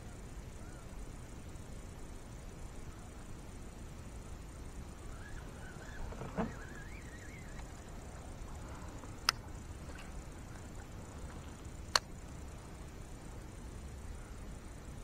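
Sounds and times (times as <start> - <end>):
low background noise: 0.0 - 15.0
sharp clicks: 9.2 - 10.2, 11.8 - 12.1.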